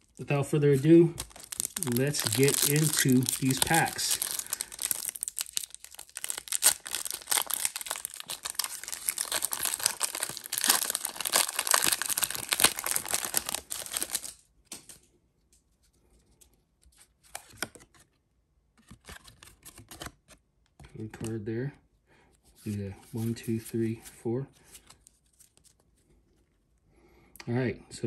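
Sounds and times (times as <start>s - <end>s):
foil wrapper tearing and crinkling: 0.8s - 14.4s.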